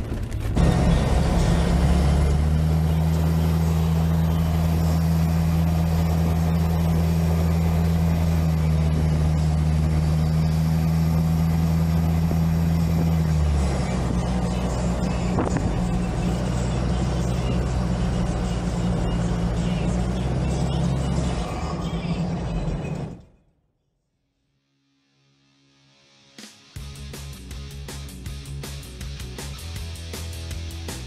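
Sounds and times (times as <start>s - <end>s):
car engine droning: 0.0s - 23.4s
road noise: 0.0s - 23.4s.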